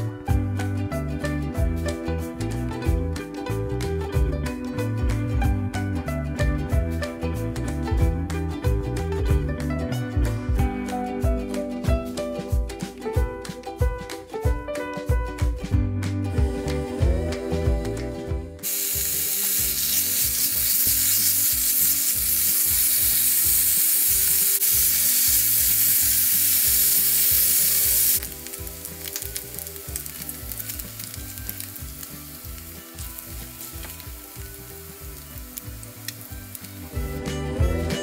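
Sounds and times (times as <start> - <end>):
pork sizzling in hot fat: 18.6 - 37.6.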